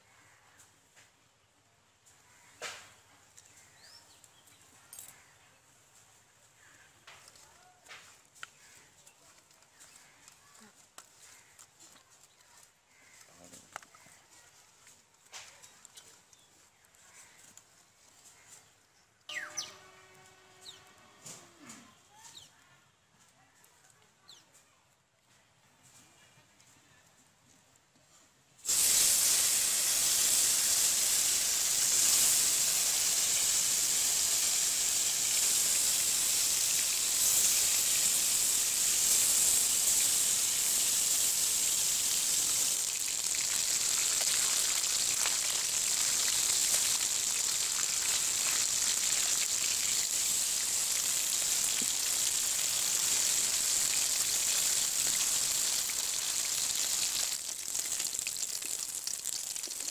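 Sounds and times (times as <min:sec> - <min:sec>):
fish sizzling in hot oil: 0:28.6 - 0:59.9.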